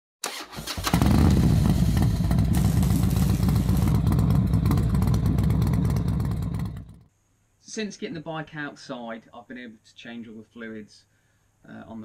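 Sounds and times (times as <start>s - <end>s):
motorcycle engine running: 0.9s - 7.1s.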